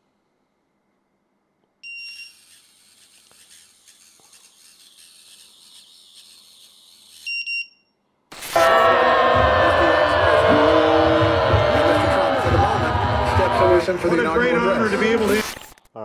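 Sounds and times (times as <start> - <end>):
drone motors whining: 8.4 - 15.8.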